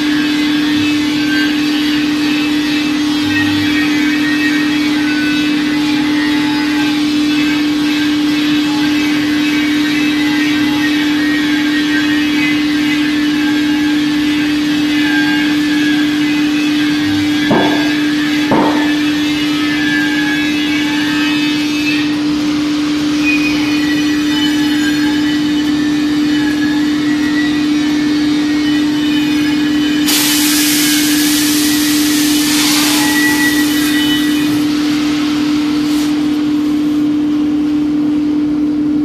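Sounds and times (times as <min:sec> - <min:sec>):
steady machine hum: 0:00.0 - 0:39.0
compressed air hissing: 0:30.0 - 0:36.4.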